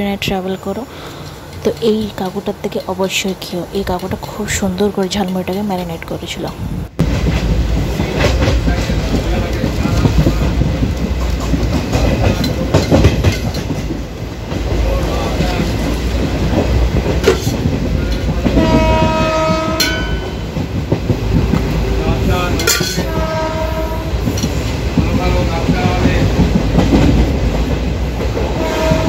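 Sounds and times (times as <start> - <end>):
train wheels rumbling and clattering: 0.0 - 29.0
train horn: 18.4 - 20.4, 22.9 - 24.3, 28.5 - 29.0.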